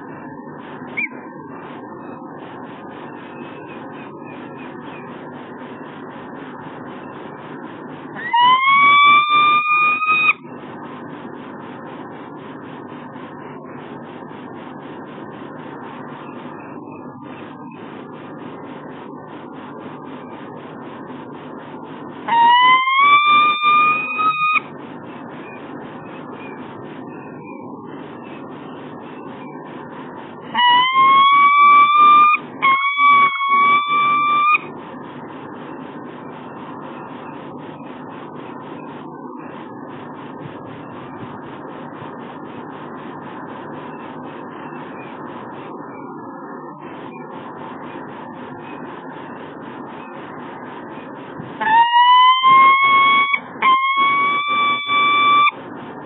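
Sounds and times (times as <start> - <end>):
falcon calling: 8.2 - 10.4, 22.3 - 24.6, 30.6 - 34.6, 51.6 - 55.5.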